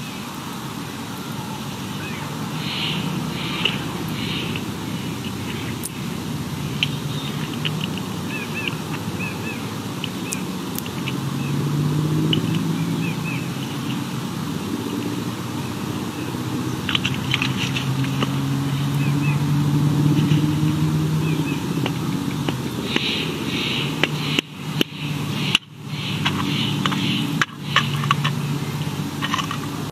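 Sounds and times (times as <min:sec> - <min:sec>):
distant engine hum: 0:00.0 - 0:29.9
faint bird chirps: 0:01.2 - 0:11.6, 0:22.7 - 0:28.9
sharp clicks: 0:02.7 - 0:06.0, 0:06.7 - 0:09.0, 0:10.0 - 0:11.2, 0:21.8 - 0:28.4.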